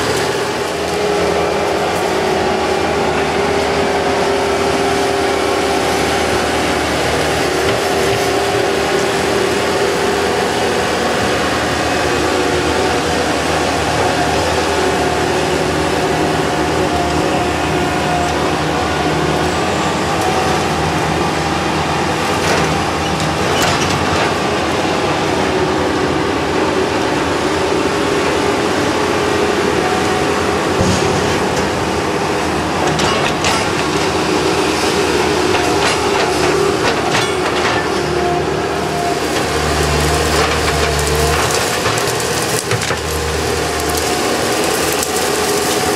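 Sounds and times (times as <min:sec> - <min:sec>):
diesel engine running: 0:00.0 - 0:45.9
whining hydraulics: 0:00.0 - 0:45.9.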